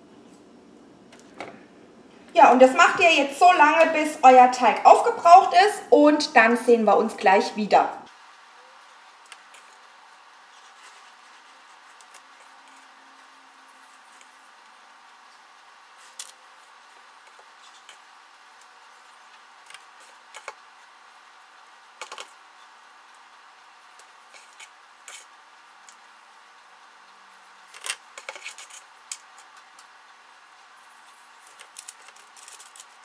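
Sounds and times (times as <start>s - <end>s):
faint steady hiss: 0.0s - 33.0s
dough rustling: 8.8s - 26.2s, 30.6s - 33.0s.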